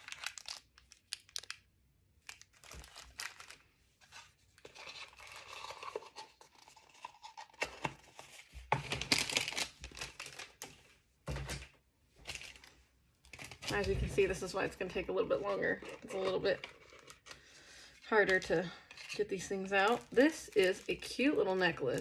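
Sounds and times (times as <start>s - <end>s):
plastic bags torn open: 0.0s - 3.6s, 8.7s - 10.6s, 13.3s - 14.0s, 18.3s - 22.0s
plastic bags crinkling: 0.0s - 7.6s, 8.7s - 11.6s, 12.2s - 14.7s, 15.3s - 22.0s.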